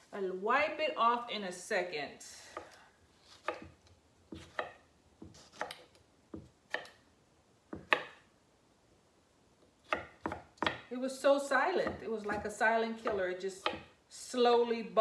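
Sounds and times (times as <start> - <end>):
knife chopping on wooden board: 3.3 - 7.0, 7.7 - 8.2, 9.8 - 10.9, 11.8 - 13.9.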